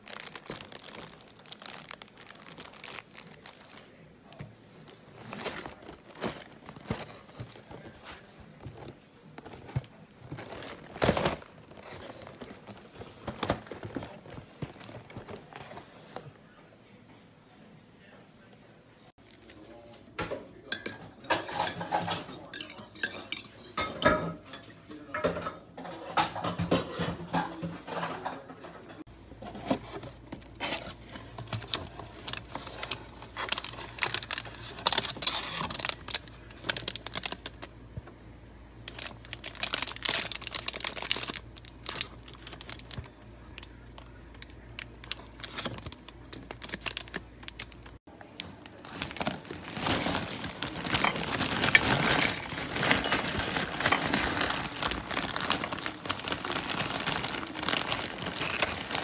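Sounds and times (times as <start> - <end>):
plastic wrappers crinkling and tearing: 0.0 - 15.7, 29.5 - 37.7, 38.8 - 59.0.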